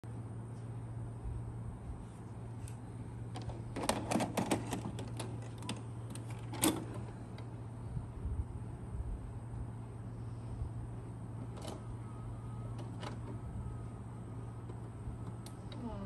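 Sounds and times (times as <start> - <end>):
tape loading mechanism clunk: 3.3 - 7.5, 11.4 - 12.0, 12.6 - 13.6.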